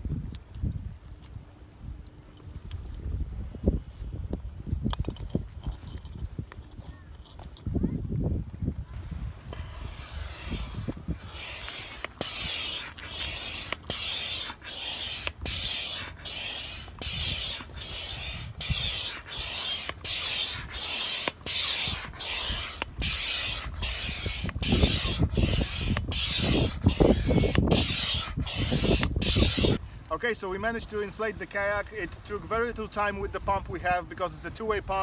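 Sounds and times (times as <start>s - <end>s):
hand pump air hisses: 9.4s - 30.1s.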